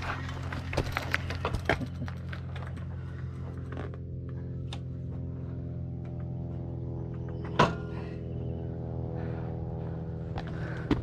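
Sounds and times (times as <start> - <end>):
tyres crunching on gravel: 0.0 - 3.6.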